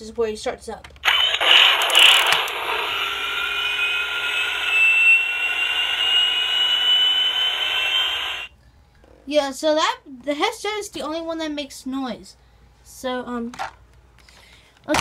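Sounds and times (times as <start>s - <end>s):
toy jet engine sound effect: 1.0s - 8.5s
thin rising whine: 1.1s - 8.5s.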